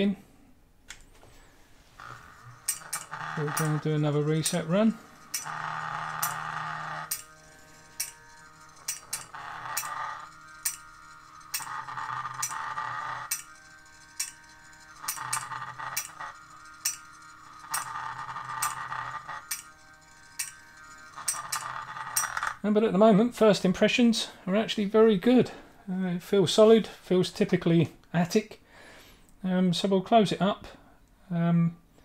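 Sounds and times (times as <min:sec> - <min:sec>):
motor whine: 0:01.8 - 0:22.6.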